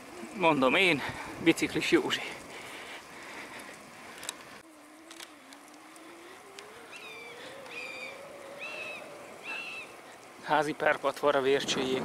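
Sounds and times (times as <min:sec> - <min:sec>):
faint buzz rising in pitch: 0:04.6 - 0:10.0
bird of prey harsh calls: 0:06.0 - 0:10.0.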